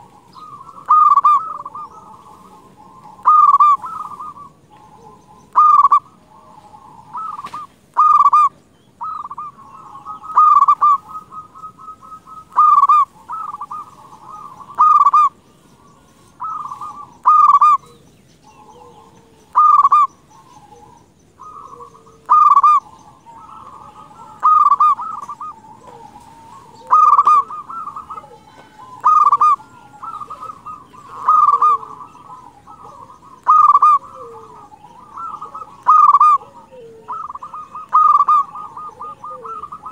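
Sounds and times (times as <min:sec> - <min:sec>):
dove cooing: 0:00.0 - 0:39.9.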